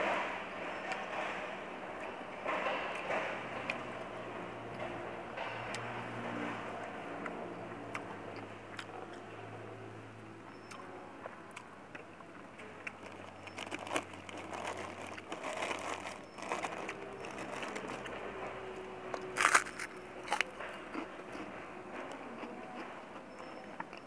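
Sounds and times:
fingers rustling in plastic container: 0:13.1 - 0:18.1
crunchy bite into cracker: 0:19.4 - 0:20.5.

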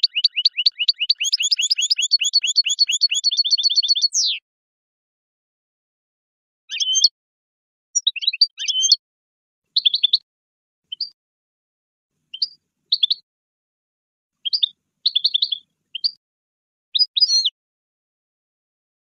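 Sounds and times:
finch high twittering song: 0:00.0 - 0:04.4, 0:06.7 - 0:07.2, 0:08.0 - 0:09.0, 0:09.7 - 0:10.2, 0:10.9 - 0:11.2, 0:12.3 - 0:13.2, 0:14.4 - 0:16.2, 0:16.9 - 0:17.6.

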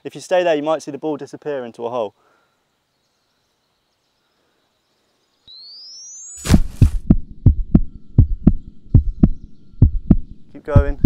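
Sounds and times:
low pulsing heartbeat thump: 0:06.5 - 0:11.0.

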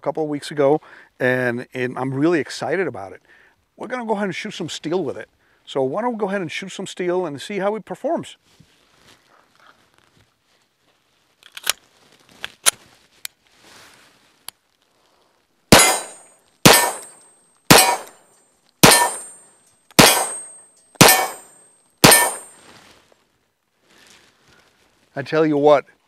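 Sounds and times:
pistol metallic clicks: 0:15.7 - 0:18.2, 0:18.8 - 0:22.5
pistol shots: 0:15.7 - 0:18.2, 0:18.8 - 0:19.4, 0:20.0 - 0:22.5.

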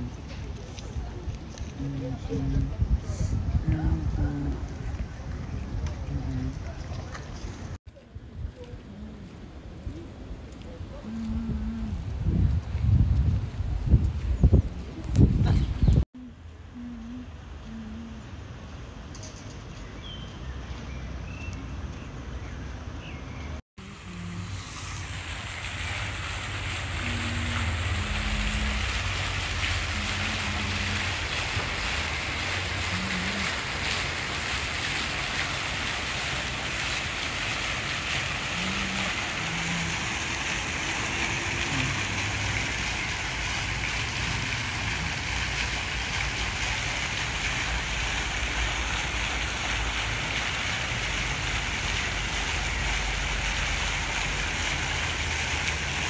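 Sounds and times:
fountain water splashing into pool: 0:23.8 - 0:56.0.

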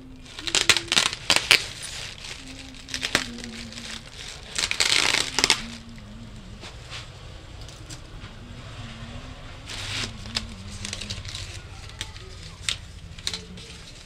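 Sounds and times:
plastic packaging crinkling: 0:00.0 - 0:06.2, 0:09.7 - 0:14.0.

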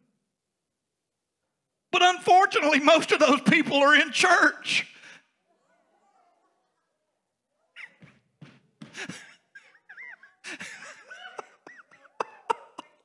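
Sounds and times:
scattered laughter: 0:09.0 - 0:13.0.

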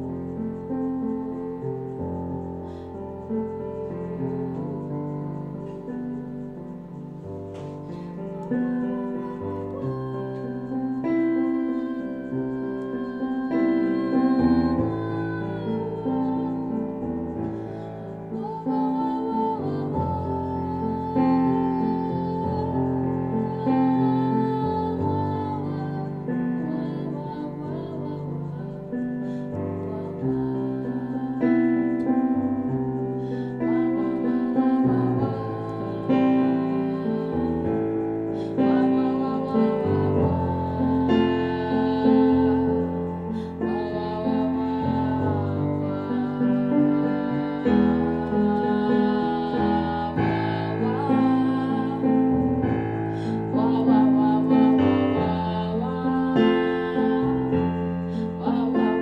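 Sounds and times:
piano chords on a keyboard: 0:00.0 - 0:59.0
woman singing: 0:00.0 - 0:59.0.

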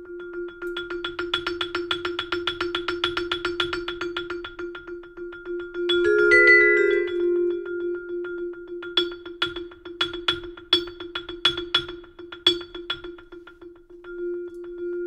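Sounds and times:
vibraphone chord: 0:05.9 - 0:09.6
vibraphone note restruck rapidly: 0:06.1 - 0:07.4.

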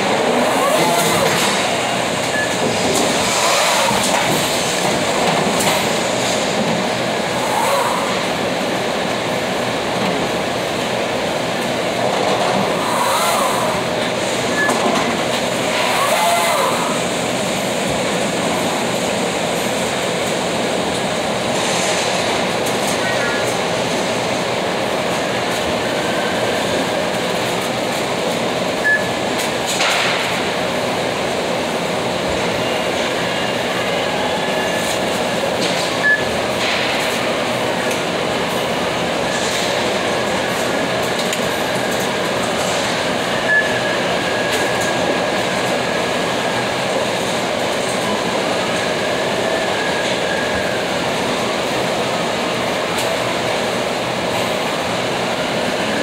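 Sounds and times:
loud mechanical running noise: 0:00.0 - 0:56.0
short high beeps: 0:02.3 - 0:02.6, 0:28.8 - 0:29.2, 0:43.5 - 0:43.8.

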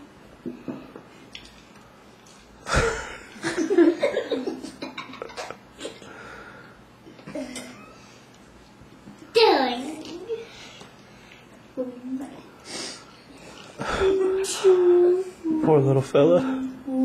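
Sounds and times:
laughter: 0:02.7 - 0:06.0.

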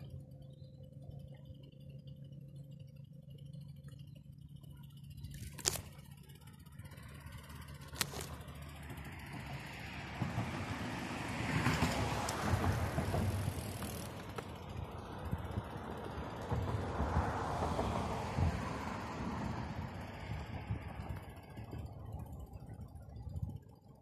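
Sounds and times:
passing vehicles: 0:00.0 - 0:24.0.

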